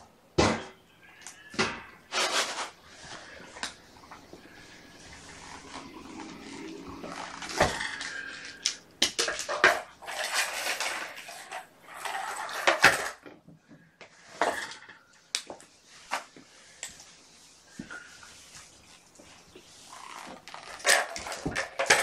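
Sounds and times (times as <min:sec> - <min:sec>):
rustling and scraping: 0:01.1 - 0:22.0
household objects clattering: 0:01.6 - 0:13.5, 0:20.3 - 0:22.0.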